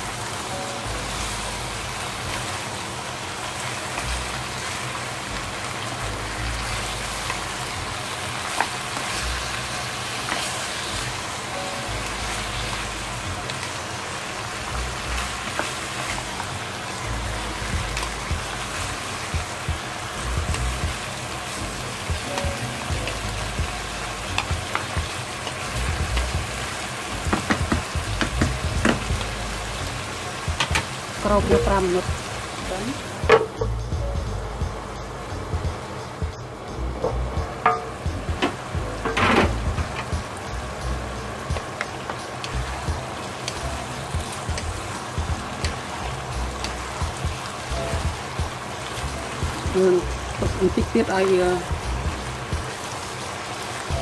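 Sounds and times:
meat sizzling in a frying pan: 0.0 - 34.3, 37.5 - 54.0
spatula tapping and scraping pan: 27.3 - 29.2, 37.6 - 40.2
wooden utensil clicking on pan: 30.6 - 30.9.

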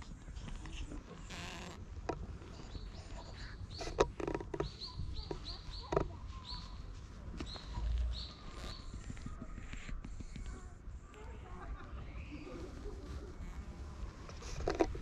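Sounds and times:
small bird chirping: 0.4 - 10.7.

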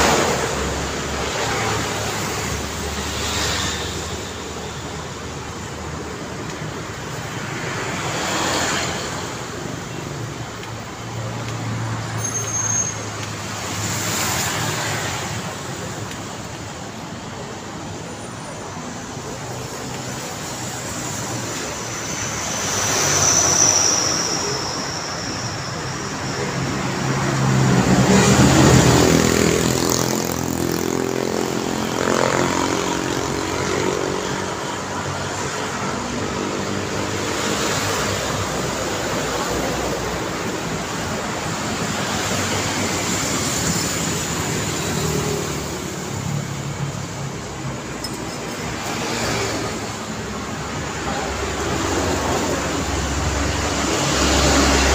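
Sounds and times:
cars and motorbikes passing: 0.0 - 54.9
truck passing close: 20.7 - 54.9.

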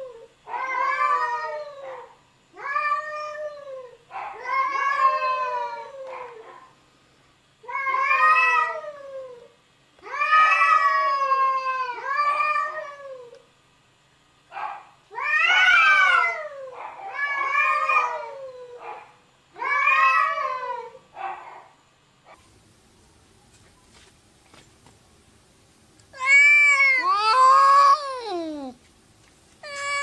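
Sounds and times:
cat yowling: 0.0 - 6.4, 7.7 - 9.5, 10.1 - 13.4, 15.1 - 19.0, 19.6 - 21.0, 26.1 - 28.8, 29.6 - 30.0.

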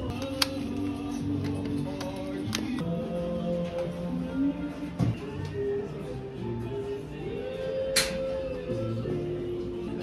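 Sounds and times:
background music with held notes: 0.0 - 10.0.

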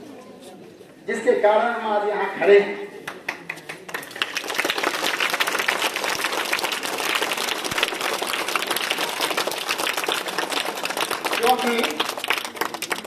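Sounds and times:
children applauding: 3.3 - 13.0.

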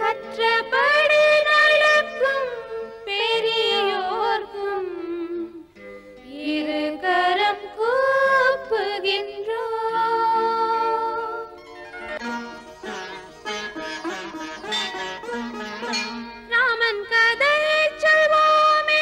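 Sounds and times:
instrumental accompaniment: 11.2 - 18.8.

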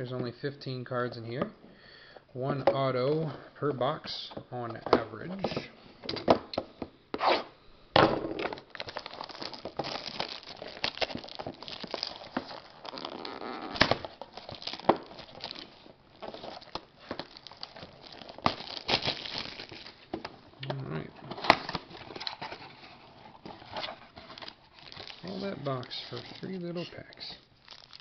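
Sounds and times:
plastic wrap crinkling and tearing: 8.4 - 20.1, 20.8 - 28.0.

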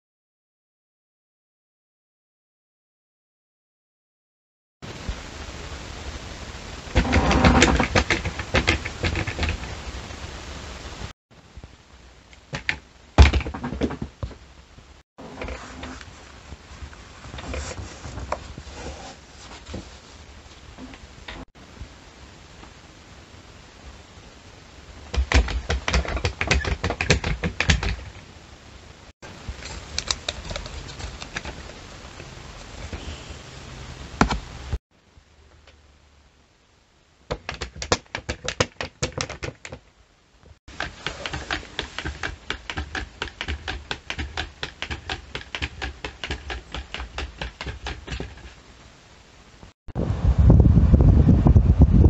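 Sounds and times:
wooden rattles: 6.9 - 9.7
wooden model clicking and clacking: 25.1 - 28.2, 37.3 - 39.8, 40.7 - 48.6.

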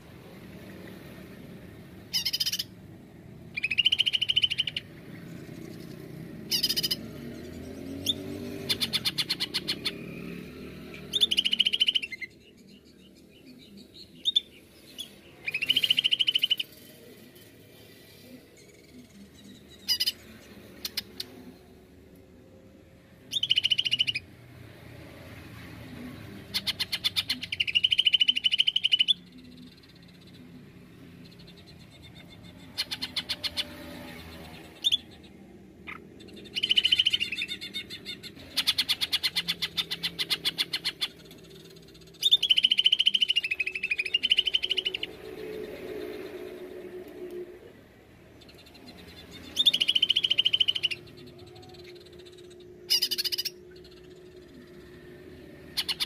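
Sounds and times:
bird singing fast trills: 2.0 - 2.8, 3.5 - 16.9, 18.6 - 21.3, 23.2 - 24.4, 26.4 - 47.0, 48.2 - 56.0
bird sharp calls: 2.1 - 2.7, 6.5 - 7.1.

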